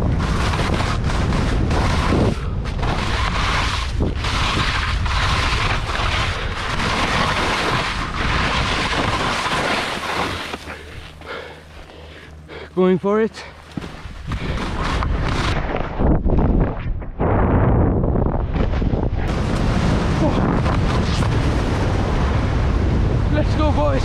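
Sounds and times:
wind buffeting microphone: 0.0s - 11.4s, 13.8s - 24.0s
skis scraping on snow: 0.0s - 12.1s, 13.7s - 15.9s.

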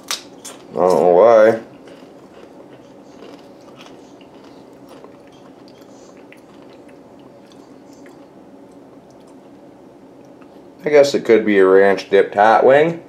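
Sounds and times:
person crunching tortilla chips: 0.0s - 8.3s.

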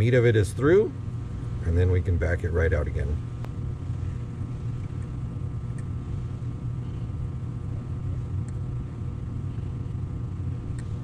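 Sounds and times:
low background hum: 0.0s - 11.0s
faint light clicks: 10.7s - 11.0s.

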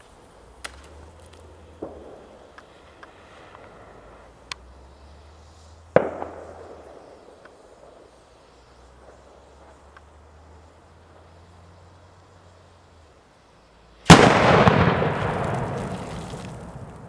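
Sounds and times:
faint crack: 0.0s - 3.7s
light pops: 0.0s - 3.7s
firework bang with echo: 6.0s - 6.9s, 14.1s - 17.0s.

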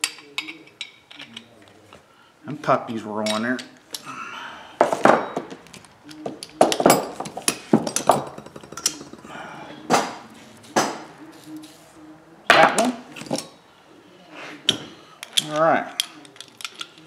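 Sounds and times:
metal tools clanking on workbench: 6.2s - 9.3s.

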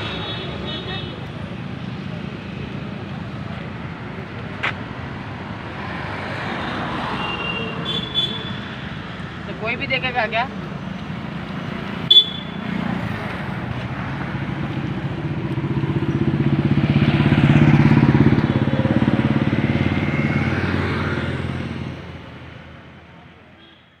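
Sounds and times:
motorcycle engine passing: 14.3s - 22.2s.

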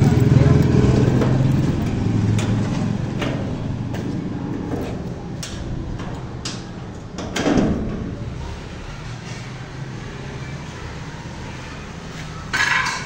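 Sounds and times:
low engine hum: 0.0s - 12.4s
metal gate clicks and knocks: 12.5s - 13.0s
metal gate scraping: 12.5s - 13.0s.

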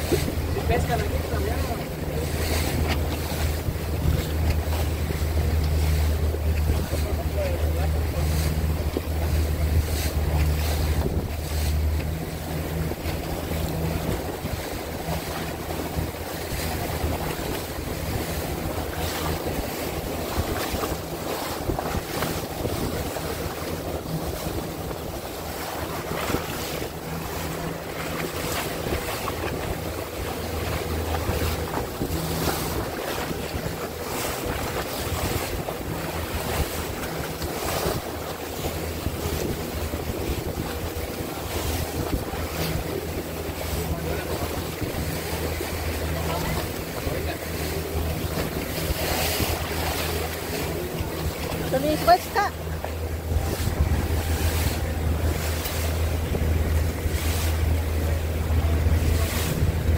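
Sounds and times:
motorboat engine: 0.0s - 59.9s
water washing: 0.0s - 59.9s
wind buffeting microphone: 0.0s - 59.9s.

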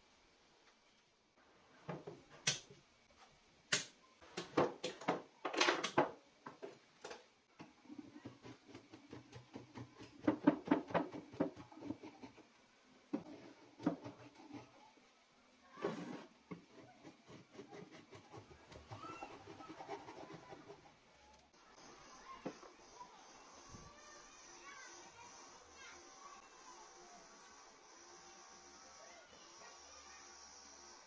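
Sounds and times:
chisel scraping wood: 15.8s - 20.8s.

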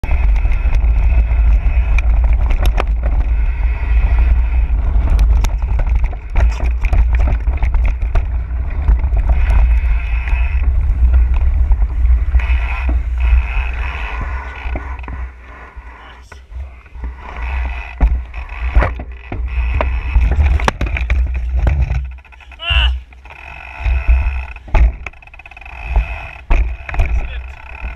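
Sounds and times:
bike rattling over rocks: 0.0s - 27.9s
wind rumbling on microphone: 0.0s - 27.9s.

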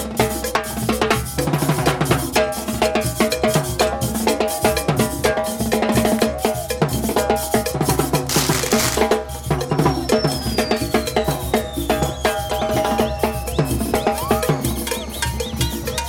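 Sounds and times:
bass drum and snare beat: 0.0s - 16.0s
brass band playing dance tune: 8.3s - 9.5s.

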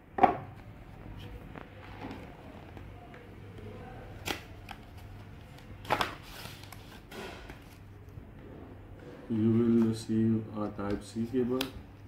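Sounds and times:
cardboard and paper rustling: 4.2s - 7.8s.

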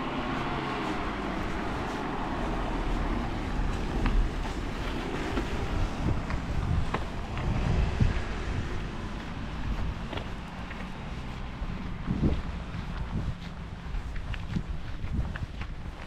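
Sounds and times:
van driving past on wet street: 0.0s - 11.9s
wind rumble on microphone: 0.0s - 16.0s.

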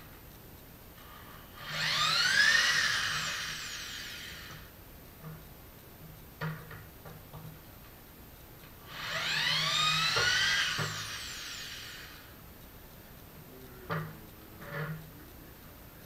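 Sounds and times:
power drill spinning: 1.0s - 4.7s, 8.8s - 12.4s.

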